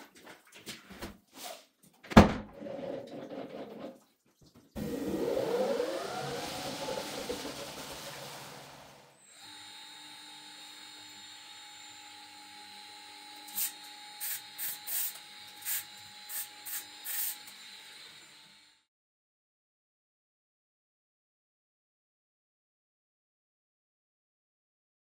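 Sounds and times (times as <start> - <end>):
centrifuge whirring: 4.8 - 9.8
short spray hisses: 13.6 - 17.4.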